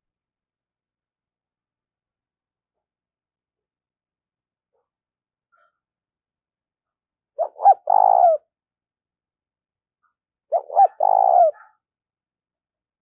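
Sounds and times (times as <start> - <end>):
dove cooing: 7.4 - 8.5, 10.5 - 11.7.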